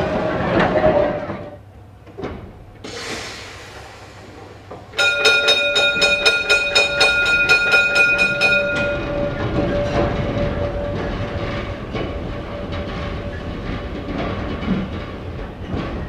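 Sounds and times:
tram rumbling on rails: 0:00.0 - 0:16.0
short hiss: 0:02.9 - 0:04.6
tram warning gong ringing: 0:04.9 - 0:15.3.

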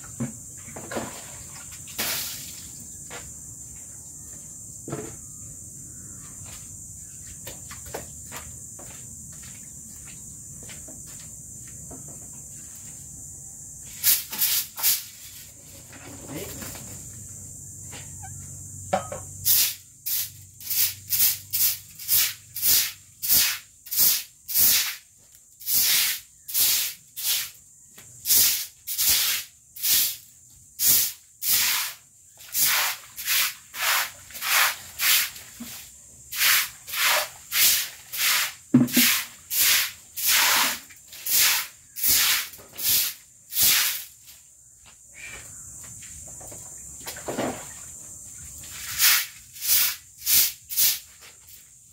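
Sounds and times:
broom sweeping wet concrete: 0:01.0 - 0:02.8, 0:13.8 - 0:16.7, 0:19.4 - 0:27.6, 0:28.2 - 0:44.5, 0:48.3 - 0:51.9.

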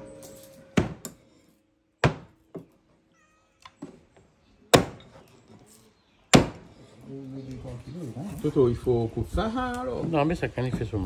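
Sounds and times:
knocks and thuds of handled objects: 0:02.0 - 0:02.8.

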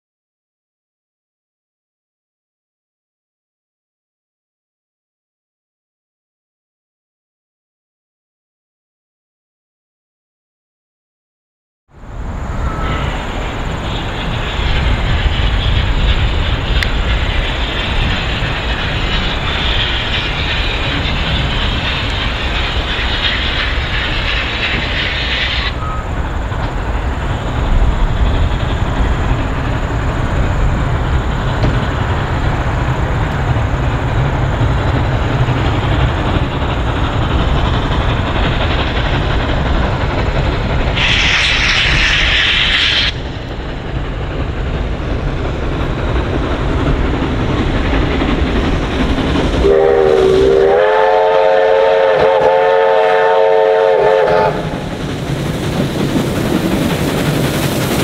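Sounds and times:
steam locomotive working hard: 0:12.0 - 0:58.0.

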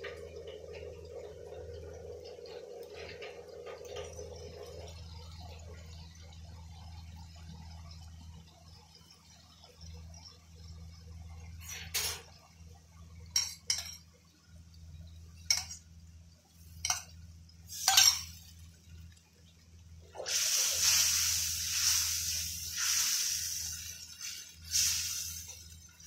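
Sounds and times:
low steady hum: 0:00.0 - 0:26.0
metal utensils clinking on wok: 0:13.4 - 0:14.0, 0:17.8 - 0:18.4
liquid hissing in hot wok: 0:17.7 - 0:18.5, 0:20.1 - 0:26.0.

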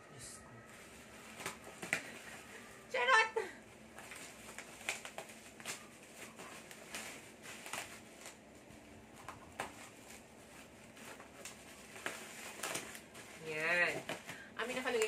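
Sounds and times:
plastic wrapping crinkling: 0:00.6 - 0:15.0.

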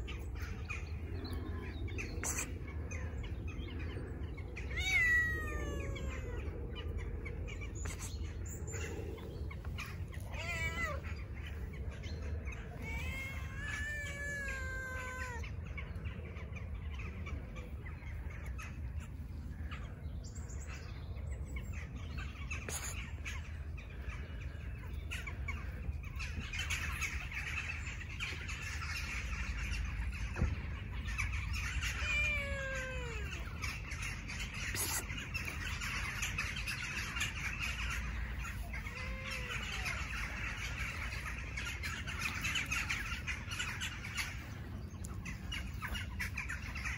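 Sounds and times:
cat meowing: 0:04.6 - 0:06.5, 0:10.1 - 0:11.6, 0:12.8 - 0:15.4, 0:31.8 - 0:33.7, 0:38.5 - 0:40.2
low rumble: 0:05.7 - 0:13.0.

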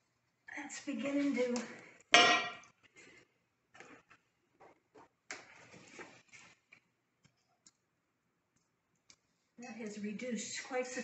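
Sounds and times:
cast-iron cookware clanking on brick: 0:02.2 - 0:02.7.

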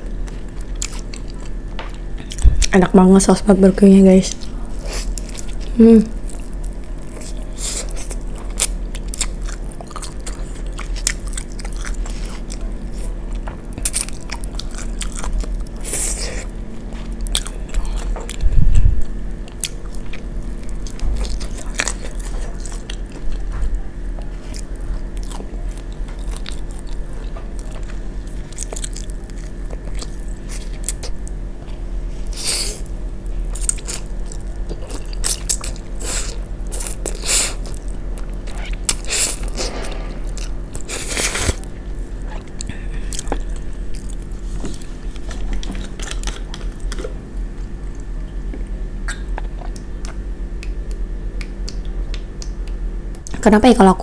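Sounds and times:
crunchy chewing: 0:00.0 - 0:02.7, 0:04.3 - 0:53.4
eating noodles: 0:33.5 - 0:48.1.

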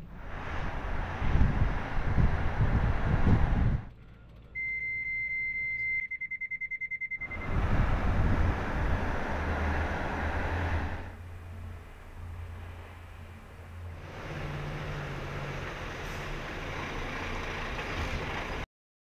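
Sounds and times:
truck driving on road: 0:00.0 - 0:18.7
high warning alarm beeping: 0:04.0 - 0:07.6.

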